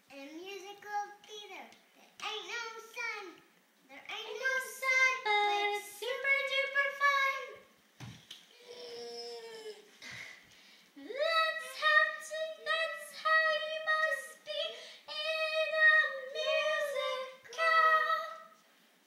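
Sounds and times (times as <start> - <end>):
girl singing unaccompanied: 2.2 - 7.8, 11.0 - 18.7.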